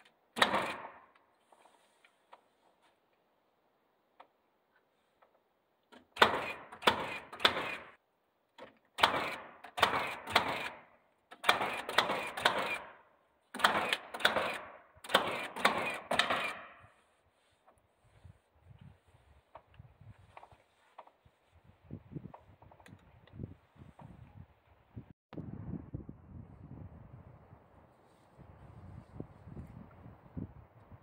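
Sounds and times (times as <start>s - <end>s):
nail gun firing: 0.3s - 1.2s, 6.0s - 8.0s, 8.9s - 16.9s.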